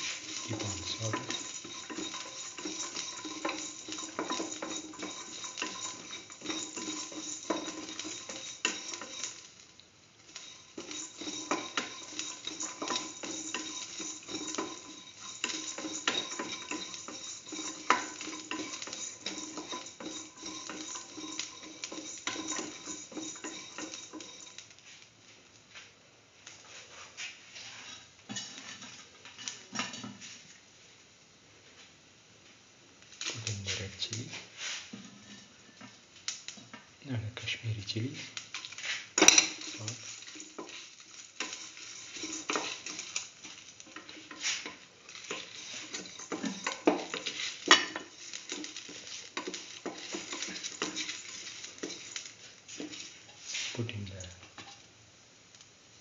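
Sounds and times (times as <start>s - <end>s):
utensil scraping a metal pan: 0.0s - 9.5s, 10.3s - 24.5s, 38.7s - 53.8s
oil sizzling: 0.0s - 56.0s.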